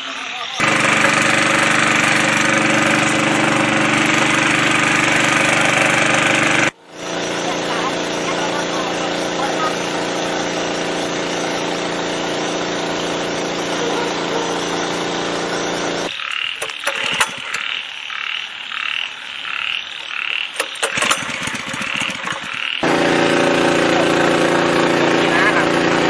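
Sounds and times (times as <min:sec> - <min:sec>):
water pump engine running: 0:00.6 - 0:17.7, 0:20.6 - 0:26.0
frog calling: 0:16.1 - 0:22.8.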